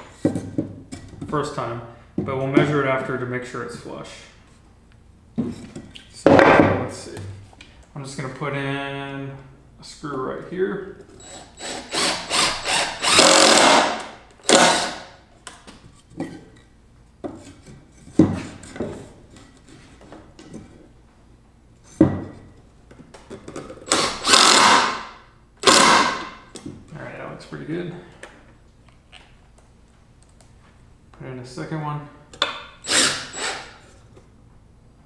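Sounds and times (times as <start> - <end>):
cordless drill driving screws: 11.2 - 15.1, 23.9 - 25.0, 25.6 - 26.2, 32.8 - 33.8.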